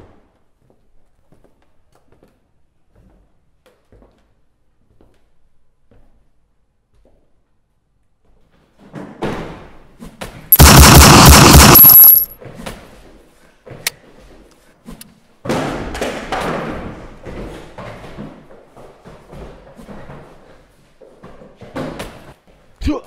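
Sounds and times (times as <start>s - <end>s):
heavy impact: 10.6s - 12.3s
loud blast: 10.6s - 12.3s.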